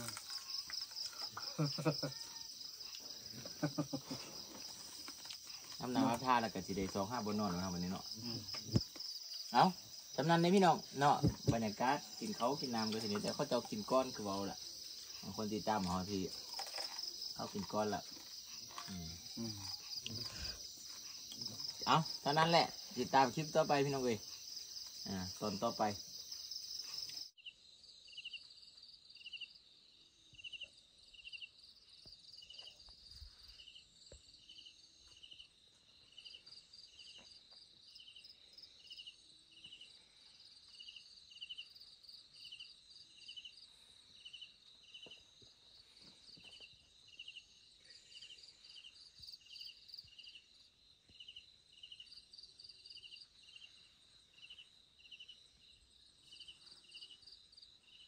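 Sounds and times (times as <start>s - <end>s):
high-pitched insect drone: 0.0s - 27.3s
insects chirping: 0.0s - 58.0s
soft insect trill: 0.0s - 58.0s.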